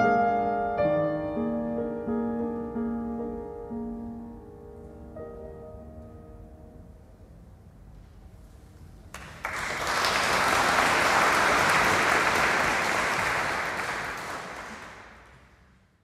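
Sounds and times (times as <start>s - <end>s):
audience applauding: 9.1s - 15.7s.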